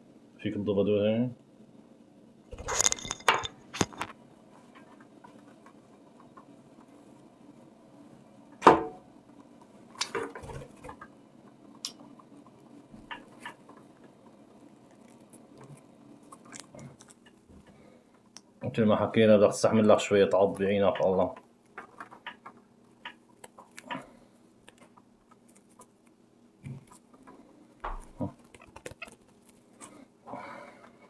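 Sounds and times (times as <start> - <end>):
clicks taps and rustles: 2.5 - 7.0, 8.6 - 14.4, 15.0 - 18.7, 20.3 - 30.0.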